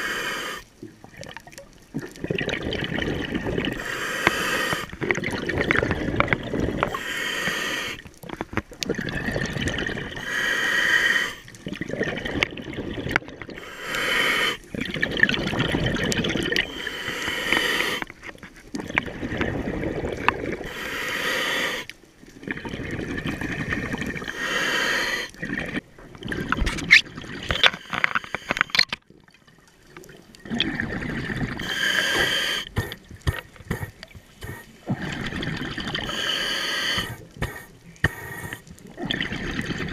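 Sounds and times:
regulator hissing inhale: 0.0s - 0.7s, 3.8s - 4.9s, 6.9s - 8.0s, 10.2s - 11.5s, 13.6s - 14.6s, 16.6s - 18.1s, 20.6s - 21.9s, 24.2s - 25.4s, 27.8s - 28.8s, 31.6s - 34.8s, 36.0s - 38.8s
bubbling exhale: 2.0s - 8.0s, 8.8s - 18.1s, 18.8s - 28.8s, 30.4s - 39.9s.

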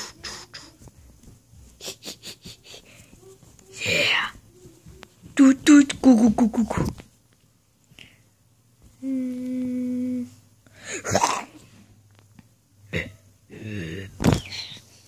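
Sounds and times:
child humming: 0.0s - 0.9s, 9.0s - 10.4s.

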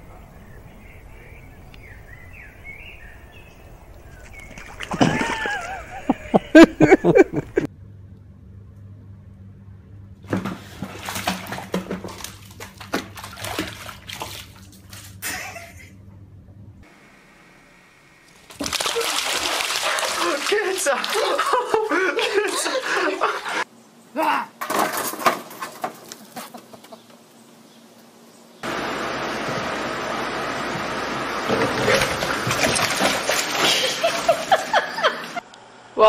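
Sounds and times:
water splashing: 3.0s - 7.2s, 10.4s - 15.2s, 18.2s - 23.6s, 31.4s - 35.4s.

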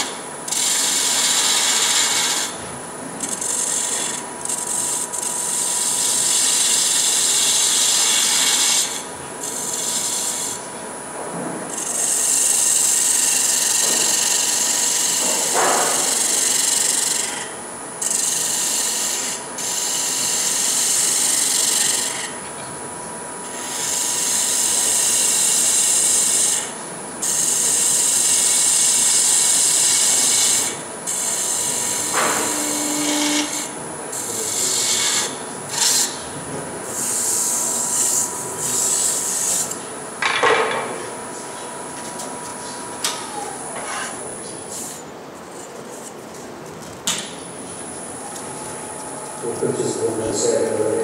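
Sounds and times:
turning tool scraping spinning wood: 3.2s - 10.6s.

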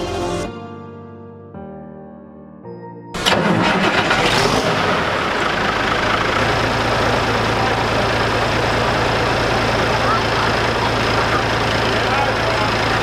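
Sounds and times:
tractor engine idling: 3.2s - 13.0s.

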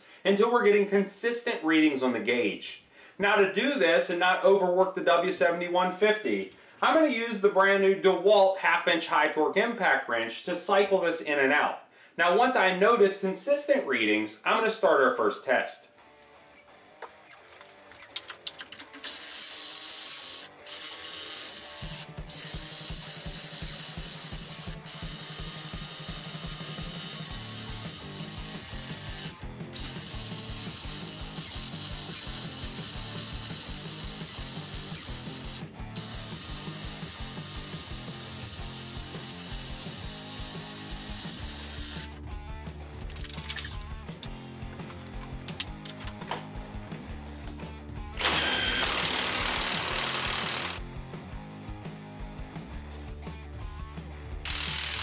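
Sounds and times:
impact wrench hammering a nut: 48.2s - 50.8s, 54.5s - 55.0s.

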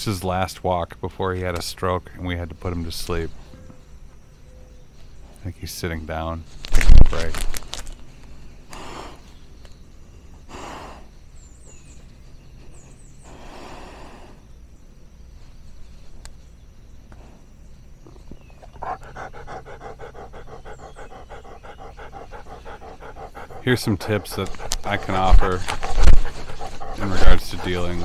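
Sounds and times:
dog breathing and panting: 18.6s - 28.0s.

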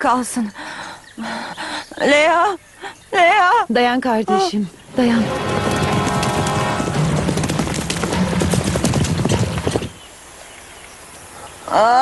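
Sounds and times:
horse hoofbeats galloping: 4.9s - 10.1s.

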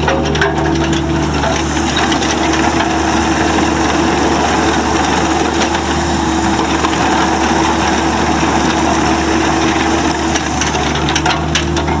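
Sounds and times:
mini excavator diesel engine running: 0.0s - 12.0s
sharp clicks and clanks: 9.6s - 12.0s.

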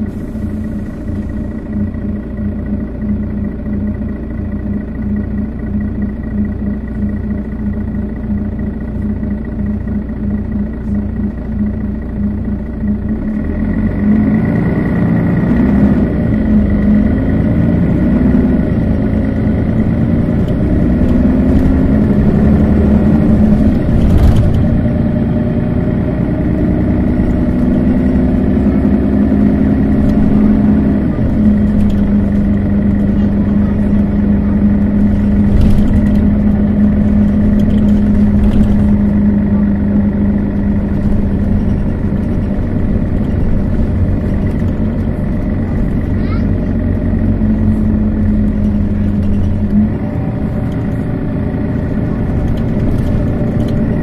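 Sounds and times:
bus diesel engine running: 0.0s - 54.0s.

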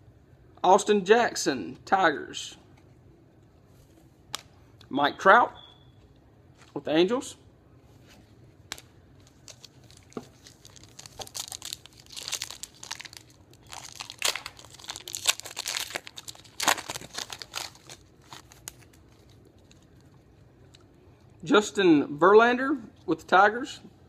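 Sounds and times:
wrapper crinkling and tearing: 8.7s - 20.2s.

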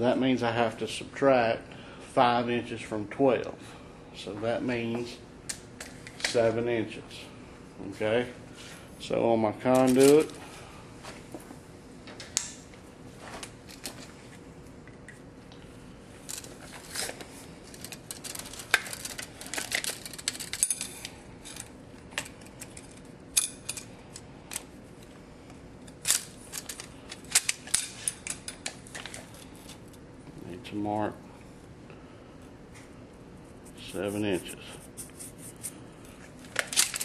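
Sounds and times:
metallic clatter of tools and conduit: 9.7s - 10.4s, 16.3s - 23.9s.

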